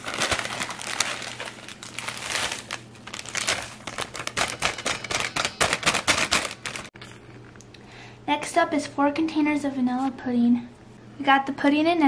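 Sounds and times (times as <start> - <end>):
plastic bag crinkling: 0.0 - 6.9.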